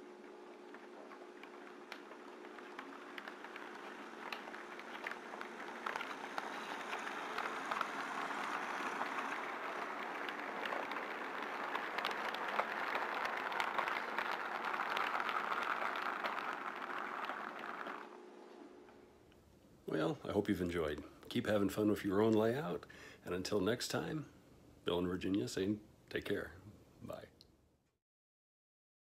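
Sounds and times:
model train wheels rumbling on rails: 0:00.7 - 0:18.8
wheels clicking over rail joints: 0:00.9 - 0:18.1.

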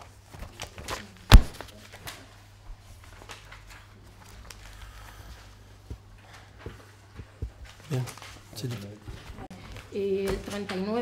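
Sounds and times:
papers rustling: 0:00.1 - 0:11.0
sharp loud knock: 0:01.3 - 0:01.6.

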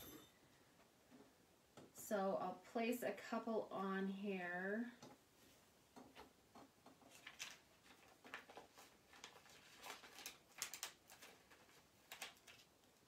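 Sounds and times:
plastic sheet crinkling: 0:07.0 - 0:13.0.

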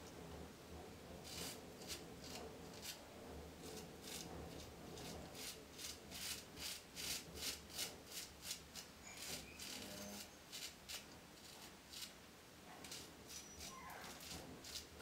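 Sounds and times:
razor scraping stubble: 0:05.0 - 0:12.2, 0:12.8 - 0:15.0.

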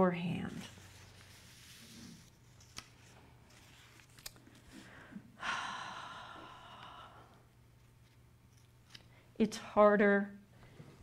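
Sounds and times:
person sighing: 0:04.9 - 0:07.4.

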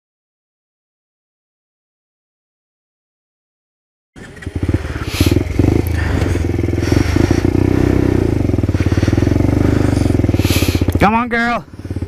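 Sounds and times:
motorcycle engine running: 0:04.2 - 0:12.0.

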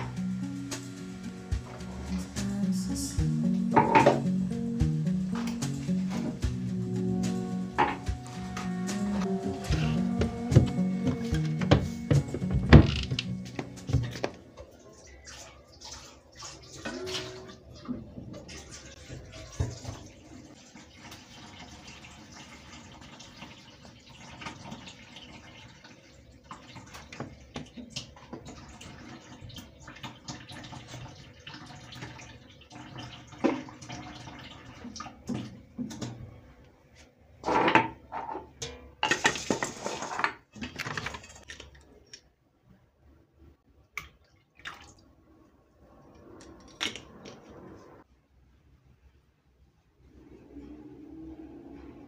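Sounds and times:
water splashing and running: 0:00.0 - 0:36.2, 0:39.0 - 0:42.1, 0:44.0 - 0:45.2
jars clinking in sink: 0:03.7 - 0:04.3, 0:07.8 - 0:08.1.

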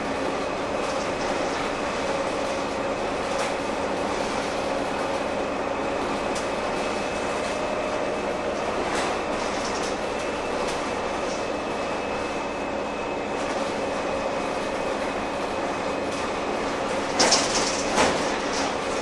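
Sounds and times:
bus engine humming: 0:00.0 - 0:19.0.

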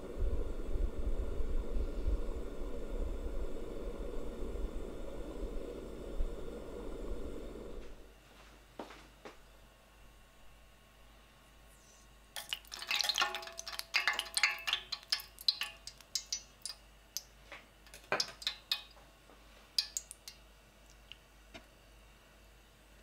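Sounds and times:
metal probe clicking on steel pan: 0:12.4 - 0:17.3, 0:19.8 - 0:20.4.

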